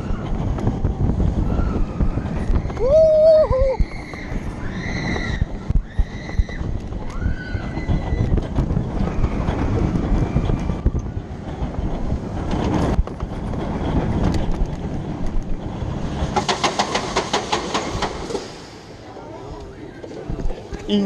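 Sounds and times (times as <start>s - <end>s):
roller coaster rumbling on track: 0.0s - 21.0s
riders screaming: 1.4s - 8.4s.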